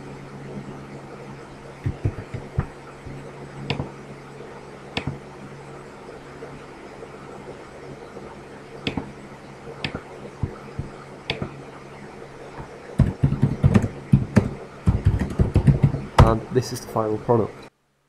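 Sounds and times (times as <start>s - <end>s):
low hum and hiss: 0.0s - 18.0s
computer mouse clicks: 3.7s - 3.9s, 5.0s - 5.2s, 8.8s - 9.1s, 9.8s - 11.6s
typing on a keyboard: 13.0s - 16.0s.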